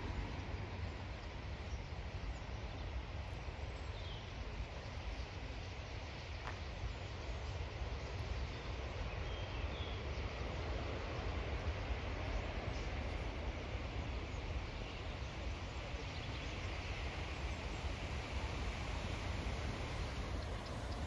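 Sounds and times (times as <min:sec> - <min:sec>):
outdoor rushing rumble: 0:00.0 - 0:02.4.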